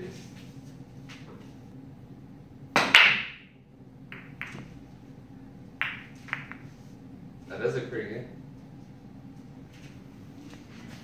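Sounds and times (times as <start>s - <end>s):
cue ball cracking into balls: 2.8s - 4.8s, 5.8s - 6.7s
pool balls clicking: 2.8s - 4.9s, 5.8s - 6.8s.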